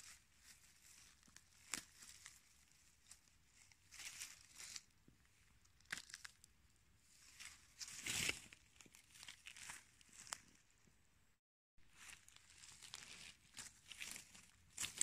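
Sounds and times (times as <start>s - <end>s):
rustling of dry leaf litter: 0.0s - 4.9s, 7.1s - 10.6s, 11.9s - 15.0s.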